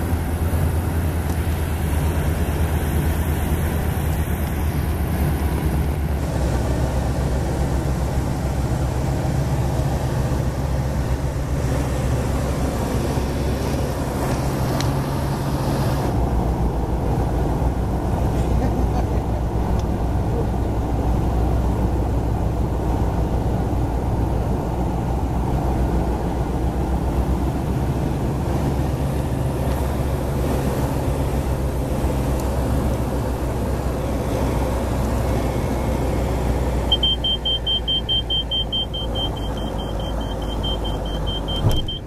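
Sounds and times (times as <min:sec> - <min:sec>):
light aircraft engine droning: 0:00.0 - 0:42.0
steady high beep: 0:36.9 - 0:42.0.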